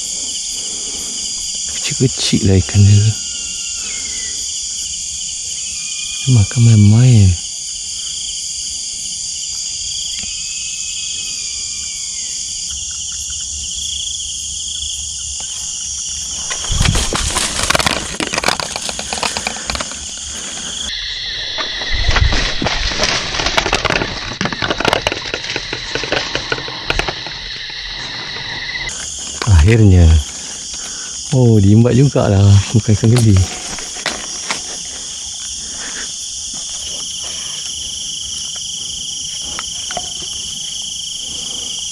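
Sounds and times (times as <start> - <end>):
crickets and night insects chirping: 0.0 - 41.9
palm fronds rustling and crackling: 15.3 - 41.6.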